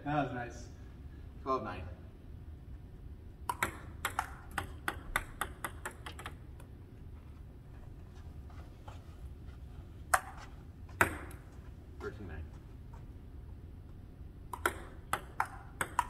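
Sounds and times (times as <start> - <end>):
ping-pong ball clicking: 3.4 - 6.7, 14.5 - 16.0.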